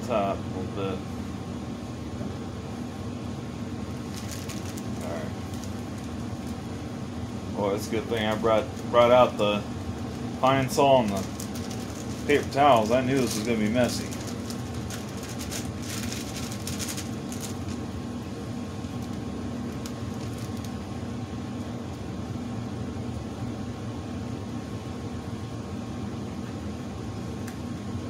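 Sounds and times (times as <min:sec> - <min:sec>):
furnace humming: 0:00.0 - 0:28.0
plastic bag crinkling: 0:04.0 - 0:06.6, 0:07.9 - 0:09.4, 0:10.0 - 0:17.9, 0:18.8 - 0:20.8.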